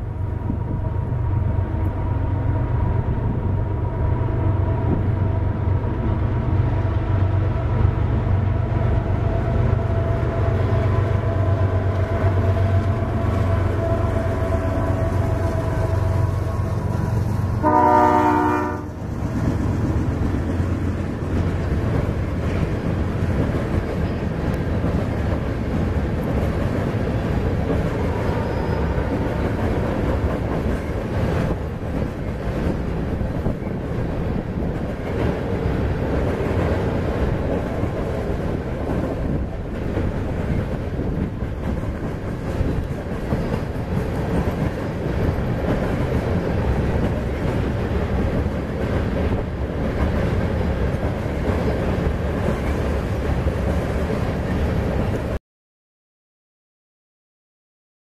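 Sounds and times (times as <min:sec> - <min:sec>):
train horn blast: 0:09.1 - 0:19.4
train wheels clattering on rails: 0:18.9 - 0:55.4.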